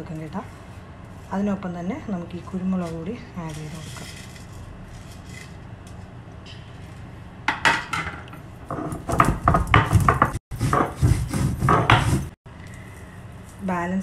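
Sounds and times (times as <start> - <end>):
stone roller grinding seeds: 2.7 - 5.6, 8.7 - 12.4.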